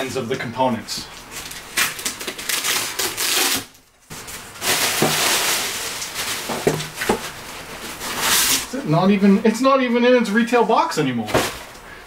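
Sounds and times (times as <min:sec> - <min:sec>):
knife slitting packing tape: 0:01.7 - 0:03.7
cardboard flaps scraping: 0:04.2 - 0:08.7.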